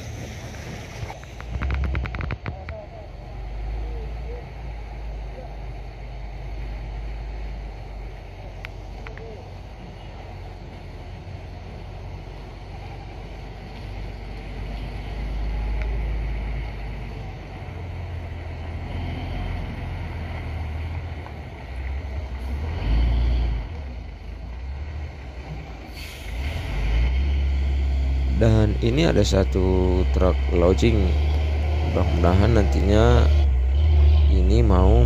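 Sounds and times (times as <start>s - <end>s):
diesel truck engine climbing: 0.0s - 35.0s
brief hiss: 25.9s - 26.8s.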